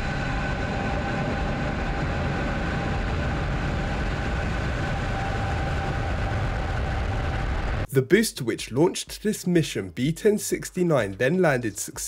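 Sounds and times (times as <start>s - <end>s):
rocket engines deep rumble: 0.0s - 7.9s.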